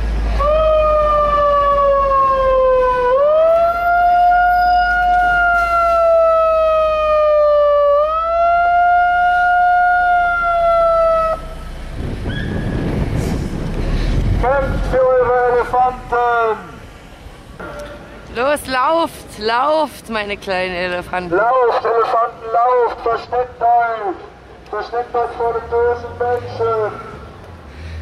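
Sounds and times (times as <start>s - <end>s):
siren wailing: 0.4s - 13.0s.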